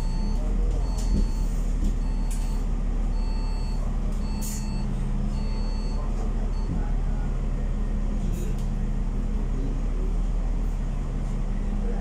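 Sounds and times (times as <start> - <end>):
short electronic beeps: 0.0 - 6.8
bus diesel engine humming: 0.0 - 12.0.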